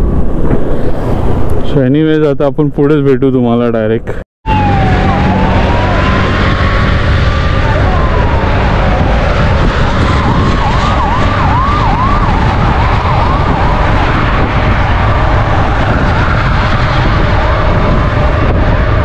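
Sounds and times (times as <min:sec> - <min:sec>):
wind and road rumble: 0:00.0 - 0:19.0
wailing siren-like tone: 0:04.4 - 0:19.0.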